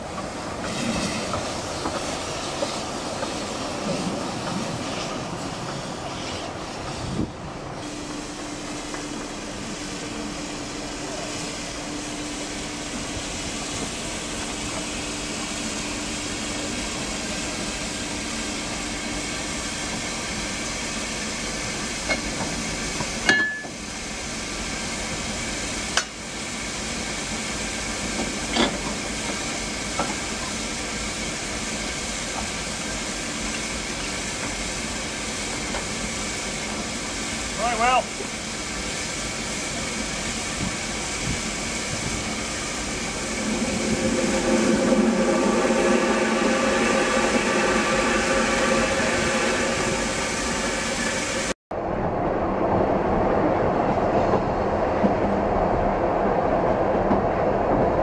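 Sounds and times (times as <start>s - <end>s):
steam hissing: 0.0s - 51.6s.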